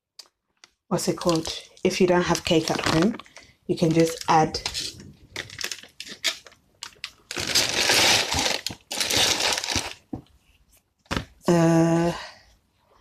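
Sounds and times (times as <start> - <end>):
packet rustling and crinkling: 1.1 - 10.2.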